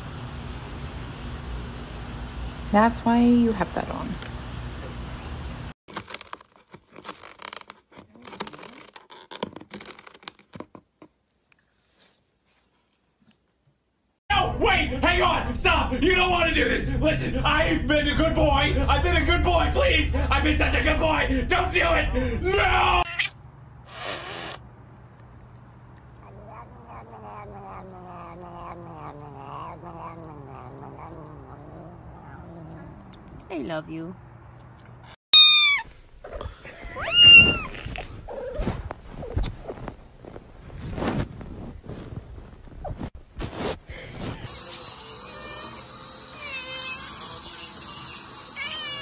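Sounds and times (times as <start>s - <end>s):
cat yowling: 23.0s - 23.4s, 26.2s - 33.2s, 35.4s - 35.9s, 36.8s - 38.5s, 48.6s - 49.0s.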